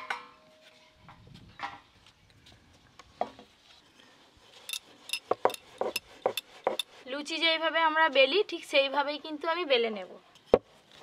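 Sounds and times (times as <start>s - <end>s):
rolling pin on wooden board: 5.1s - 6.8s.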